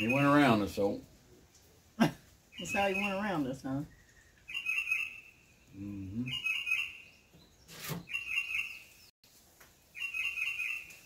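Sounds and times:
songbird singing high notes: 2.5s - 7.4s.

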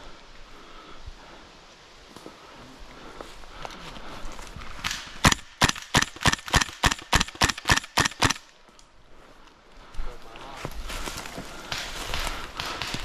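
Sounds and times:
airsoft gun shots: 4.8s - 8.4s.

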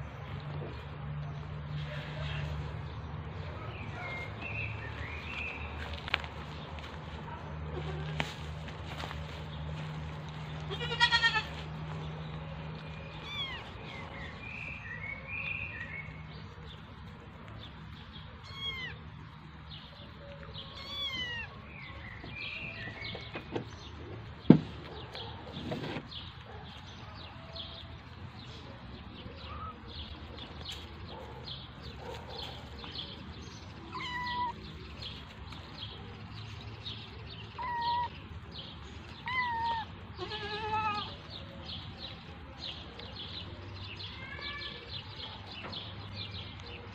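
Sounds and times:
kittens meowing: 10.7s - 11.6s, 13.1s - 14.1s, 18.4s - 19.0s, 20.7s - 21.6s, 33.9s - 34.7s, 37.4s - 38.3s, 39.1s - 41.2s.

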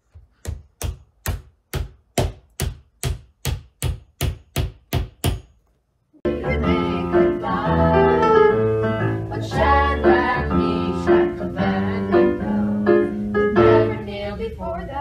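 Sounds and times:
children singing together: 9.3s - 14.4s.

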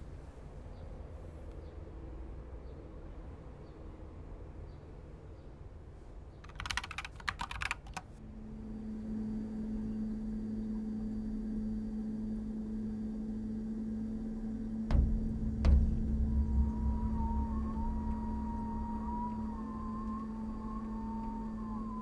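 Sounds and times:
steady low hum: 8.1s - 22.0s.

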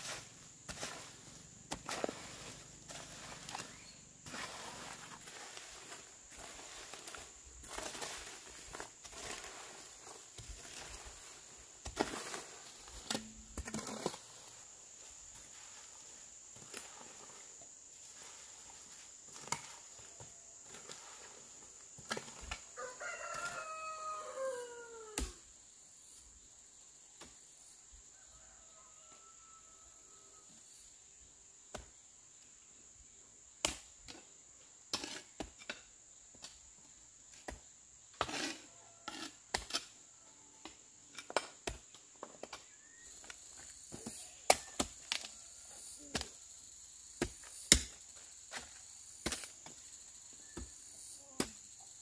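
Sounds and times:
rooster crowing: 22.8s - 25.4s, 28.1s - 30.5s.

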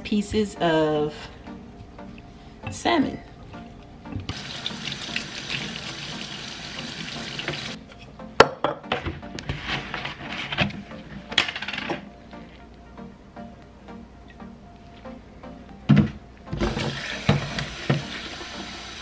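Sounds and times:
liquid pouring: 4.3s - 7.8s
tap water running into sink: 4.3s - 7.8s, 16.6s - 19.0s.

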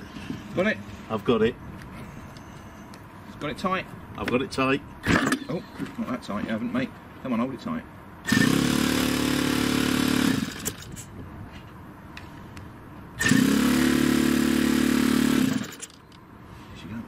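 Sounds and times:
electric starter cranking engine: 8.3s - 11.1s, 13.2s - 16.1s.

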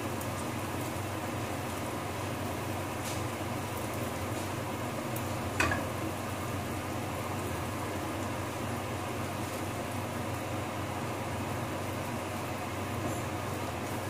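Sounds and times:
rice frying hiss: 0.0s - 14.0s.

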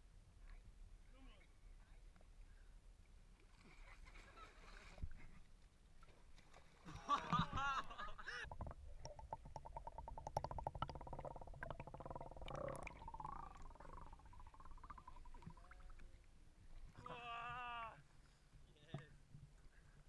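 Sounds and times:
water moving underwater: 6.7s - 17.0s
wavering gliding tones: 8.4s - 16.1s.

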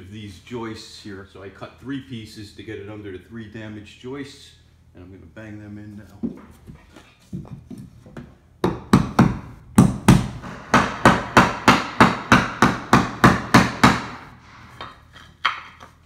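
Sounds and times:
hammer hitting wood: 8.6s - 15.7s.

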